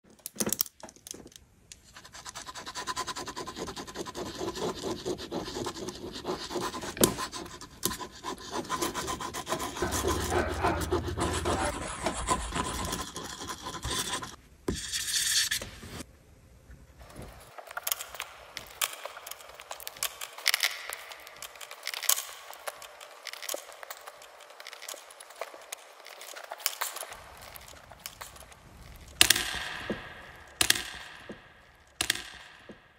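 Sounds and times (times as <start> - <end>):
pens scratching on paper: 1.8 - 16.0, 17.7 - 30.0
marker tips tapping paper: 2.1 - 14.3, 29.1 - 32.9.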